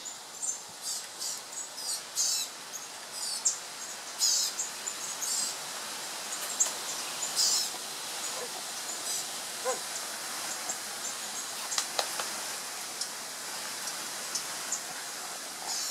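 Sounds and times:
small birds chirping: 0.0 - 5.6
steady background hiss: 0.0 - 15.9.

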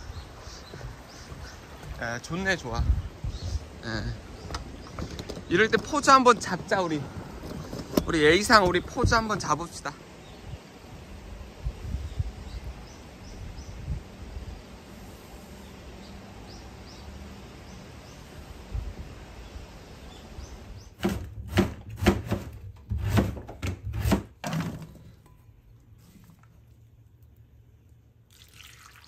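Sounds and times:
sharp knocks: 21.0 - 25.2.

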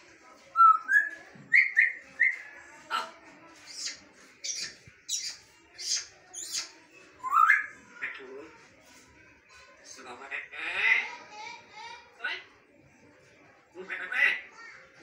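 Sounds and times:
parrot whistling and calling: 0.6 - 2.4, 3.7 - 7.8.

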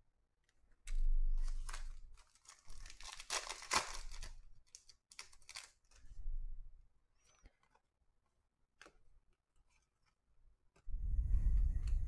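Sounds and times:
wrapper tearing and crinkling: 0.9 - 6.0.

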